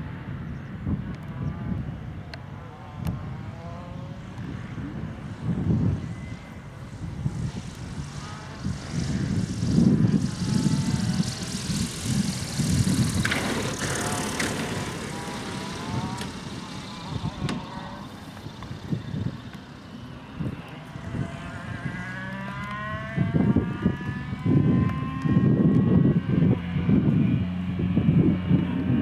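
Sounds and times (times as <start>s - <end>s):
motor glider engine passing: 0.0s - 29.0s.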